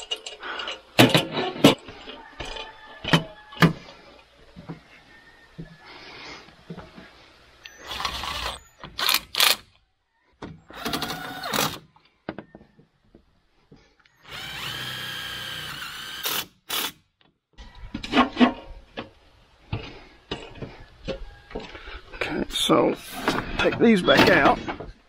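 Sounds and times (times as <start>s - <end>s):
handling knocks and rattling: 0.0s - 4.9s
power drill driving screws: 7.8s - 9.7s, 10.7s - 11.8s, 14.2s - 17.0s.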